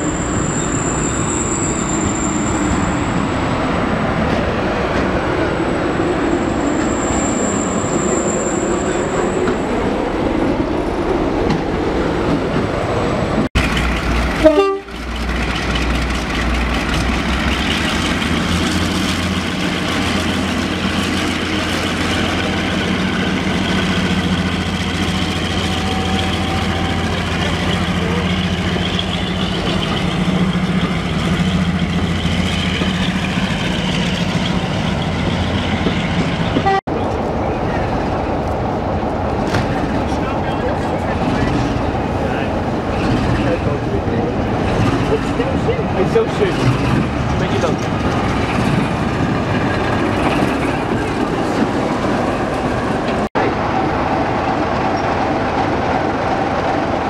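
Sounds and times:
diesel locomotive low drone: 0:00.0 - 0:57.0
locomotive running past: 0:00.0 - 0:57.0
loud locomotive blast: 0:13.2 - 0:37.9.

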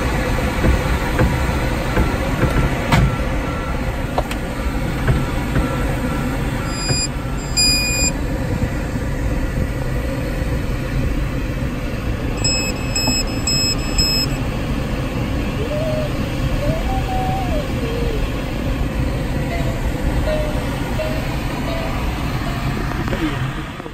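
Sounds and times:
short electronic beeps: 0:06.6 - 0:08.2, 0:12.4 - 0:14.4.

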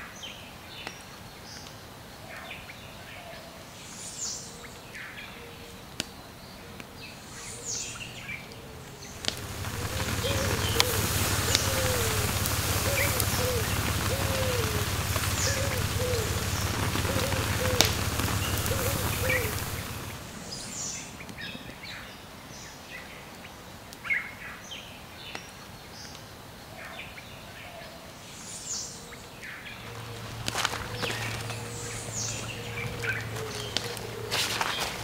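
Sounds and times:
birds chirping: 0:06.3 - 0:23.1, 0:28.5 - 0:35.0
steady rushing noise: 0:09.0 - 0:21.5, 0:29.8 - 0:35.0.

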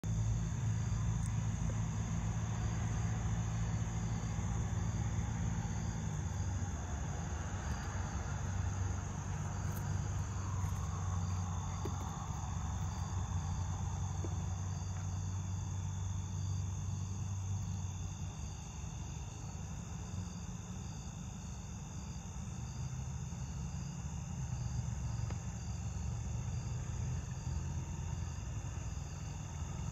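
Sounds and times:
low hum: 0:00.0 - 0:20.1
crickets and insects chirping: 0:00.0 - 0:29.9.

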